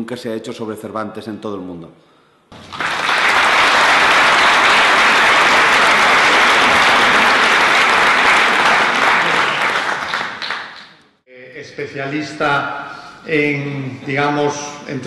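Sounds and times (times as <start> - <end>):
audience applauding: 2.5 - 11.1.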